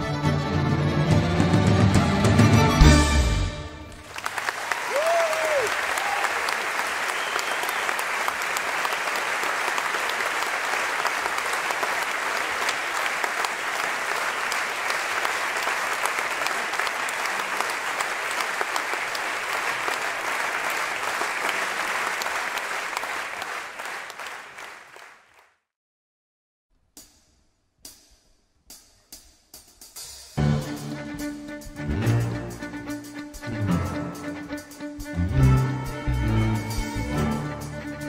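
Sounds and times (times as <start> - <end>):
crowd applauding: 3.9 - 25.6.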